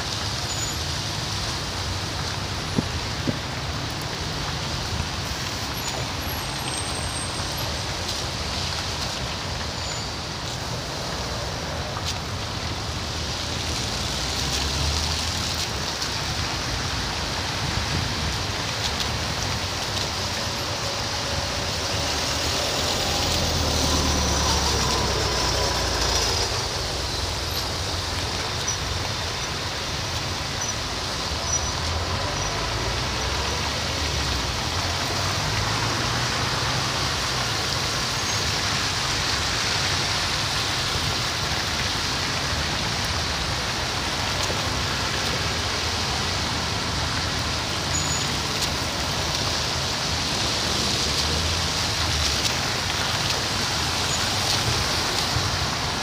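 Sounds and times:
tyres hissing on wet road: 0.0s - 56.0s
vehicle engines running: 0.0s - 56.0s
heavy vehicle passing: 19.2s - 28.6s.

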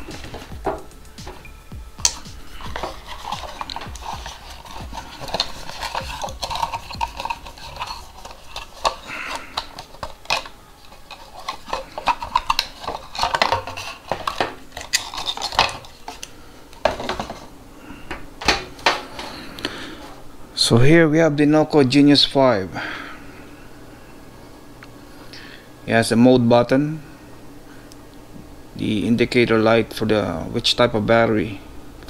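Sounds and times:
cardboard and plastic rustling: 0.0s - 1.4s, 2.1s - 17.5s.

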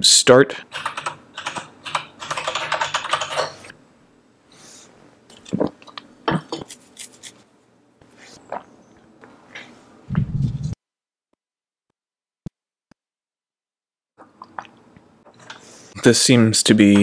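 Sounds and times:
typing on computer keyboard: 0.7s - 3.6s.

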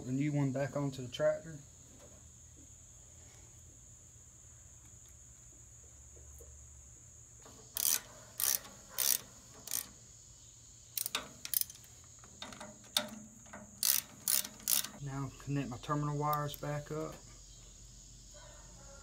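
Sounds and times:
ratchet wrench clicking: 7.7s - 10.0s, 11.0s - 15.0s.

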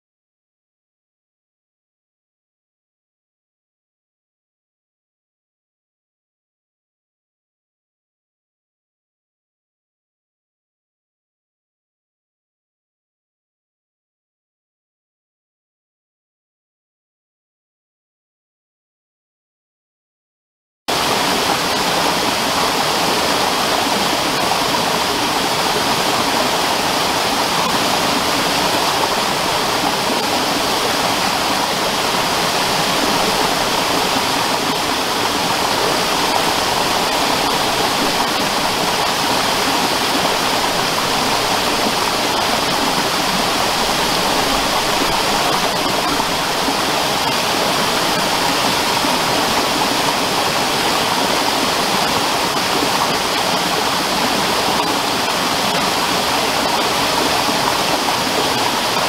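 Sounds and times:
waterfall rushing over rocks: 20.9s - 59.0s.

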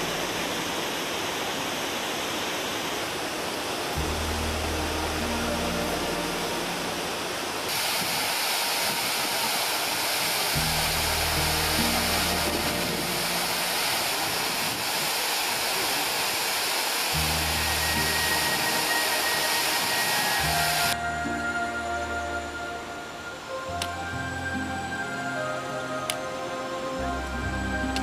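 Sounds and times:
waterfall rushing: 0.0s - 28.0s
music with low held notes: 4.0s - 7.7s, 10.6s - 14.2s, 17.2s - 28.0s.

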